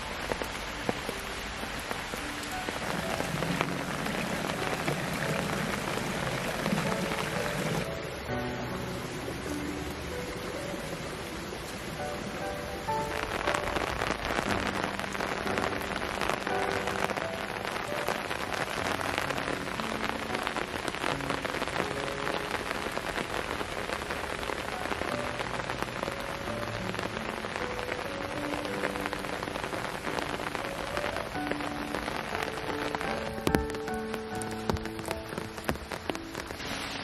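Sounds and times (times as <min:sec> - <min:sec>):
rain splashing into water: 0:00.0 - 0:37.0.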